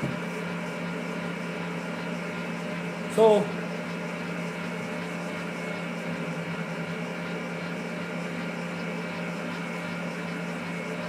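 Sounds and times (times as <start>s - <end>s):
stand mixer humming: 0.0s - 11.0s.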